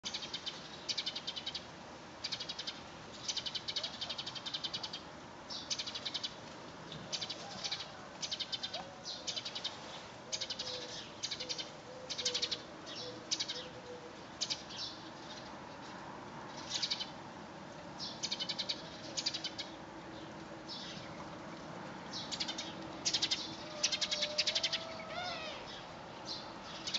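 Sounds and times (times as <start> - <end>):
animal rasping calls: 23.6 - 25.7.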